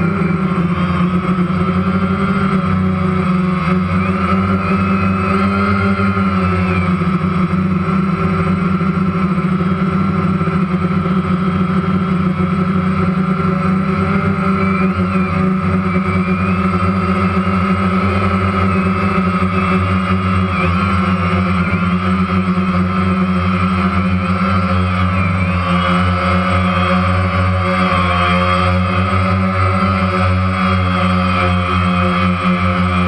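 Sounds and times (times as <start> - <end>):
drone propellers whirring: 0.0 - 33.0.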